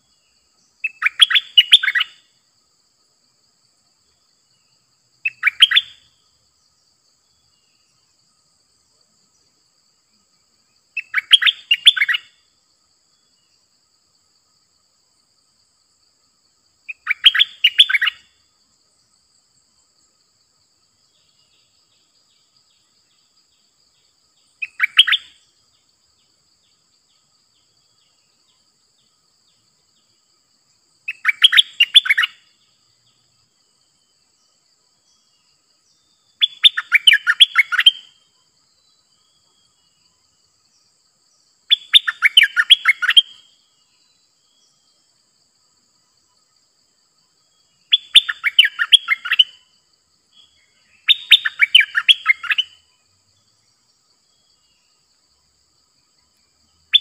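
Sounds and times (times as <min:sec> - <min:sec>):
bird singing rapid notes: 0:00.6 - 0:02.2, 0:05.2 - 0:06.1, 0:10.9 - 0:12.3, 0:16.9 - 0:18.3, 0:24.4 - 0:25.4, 0:31.1 - 0:32.4, 0:36.0 - 0:38.1, 0:41.7 - 0:43.4, 0:47.8 - 0:49.6, 0:50.4 - 0:52.9.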